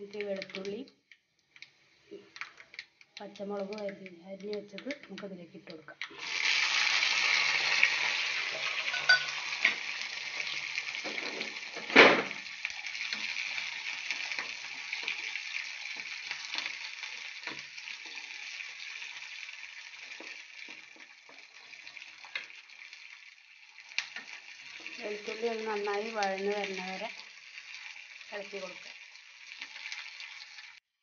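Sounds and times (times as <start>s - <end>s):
garlic and chillies sizzling in oil: 0.0s - 30.8s
spatula scraping and tapping pan: 8.5s - 9.8s.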